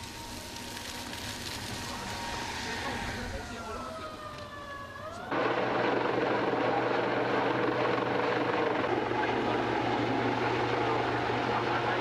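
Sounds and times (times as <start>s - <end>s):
helicopter flying overhead: 0.2s - 12.0s.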